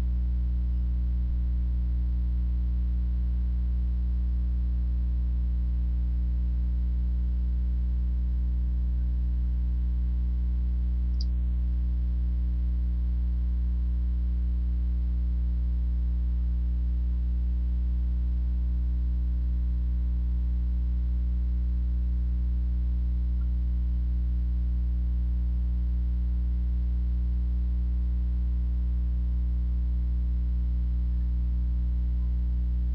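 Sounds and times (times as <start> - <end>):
electrical mains hum: 0.0 - 18.8, 28.7 - 32.9.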